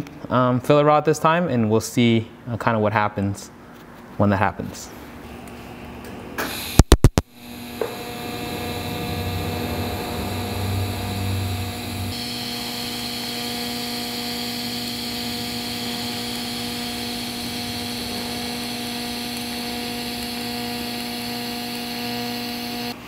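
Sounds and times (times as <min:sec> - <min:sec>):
welding arc humming and hissing: 0:06.4 - 0:23.0.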